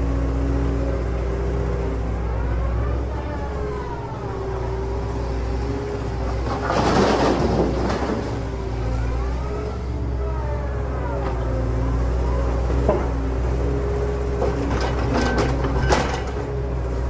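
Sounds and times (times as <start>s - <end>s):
engine-like truck drone: 0.0s - 17.0s.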